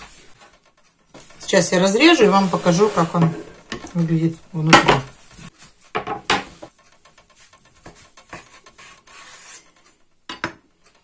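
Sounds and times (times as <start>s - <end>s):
knife scraping while slicing: 7.8s - 9.9s.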